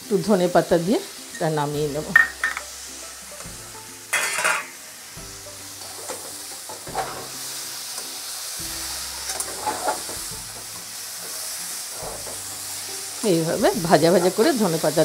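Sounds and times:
oil sizzling: 0.0s - 15.0s
metal spatula scraping pan: 4.1s - 4.8s, 5.8s - 7.4s, 9.2s - 10.7s.

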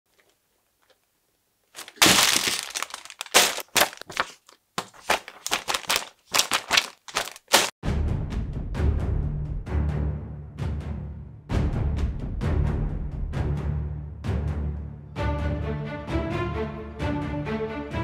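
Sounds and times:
plastic bags crackling: 1.7s - 7.8s
cardboard box being opened: 1.8s - 4.4s
background music with low beat: 7.8s - 18.0s.

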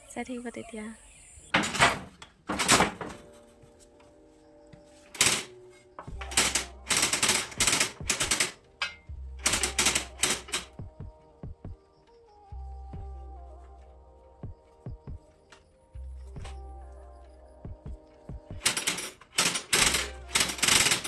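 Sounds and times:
wooden handloom clacking: 1.6s - 3.3s, 5.1s - 5.5s, 6.1s - 10.7s, 18.6s - 21.0s.

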